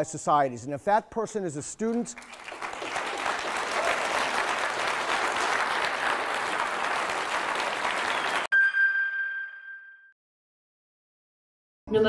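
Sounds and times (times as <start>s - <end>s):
audience clapping: 1.8s - 8.5s
bright ringing chime: 8.5s - 10.2s.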